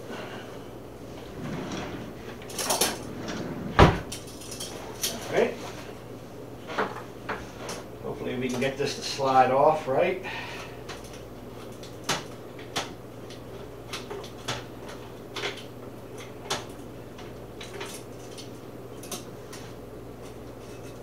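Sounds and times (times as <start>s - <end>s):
low steady hum: 0.0s - 21.0s.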